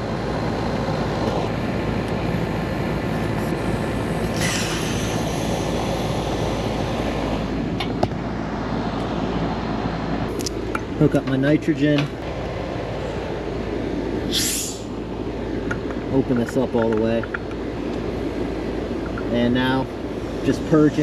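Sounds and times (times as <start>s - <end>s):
refrigerant hissing from valve: 3.5s - 7.1s, 14.3s - 14.9s.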